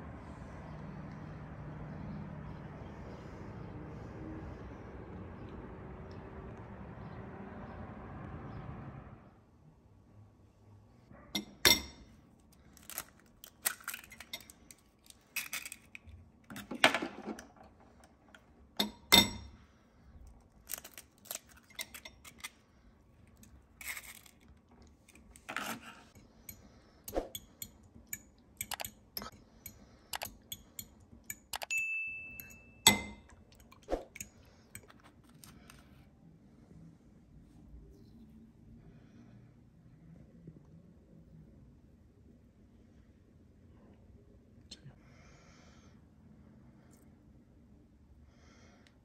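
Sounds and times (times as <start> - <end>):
eggshell crunching: 12.4 - 16.2, 20.2 - 22.6, 23.2 - 25.5
fork clinking on glass: 26.5 - 35.1.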